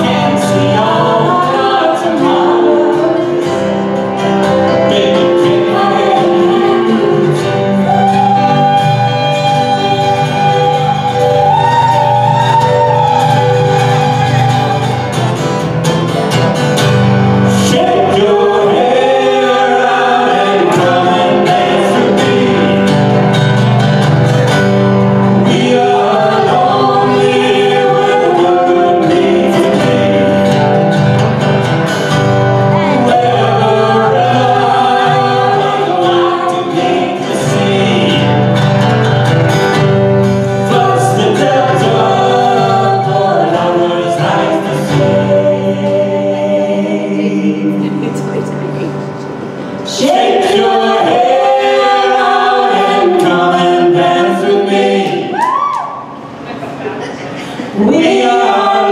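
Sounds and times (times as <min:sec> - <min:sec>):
person singing: 0:00.0 - 0:03.8, 0:04.5 - 0:15.2, 0:17.5 - 0:23.0, 0:25.3 - 0:30.8, 0:32.7 - 0:38.6, 0:40.6 - 0:48.9
keyboard: 0:00.0 - 0:55.3
guitars: 0:00.0 - 0:58.9.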